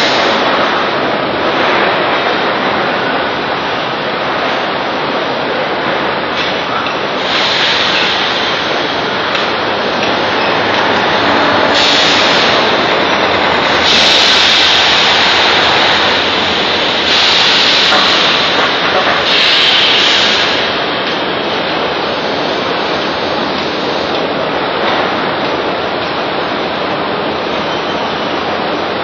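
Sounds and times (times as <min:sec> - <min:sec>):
loud machinery din: 0:00.0 - 0:22.0
hissing air bursts: 0:06.3 - 0:20.9.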